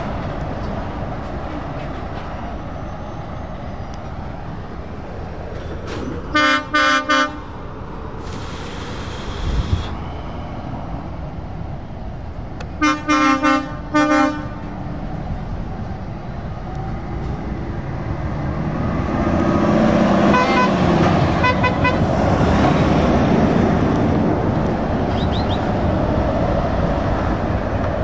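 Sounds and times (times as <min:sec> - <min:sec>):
heavy truck engines approaching: 0:00.0 - 0:28.0
truck air horn blasts: 0:06.3 - 0:07.5, 0:12.8 - 0:14.7, 0:20.3 - 0:22.1.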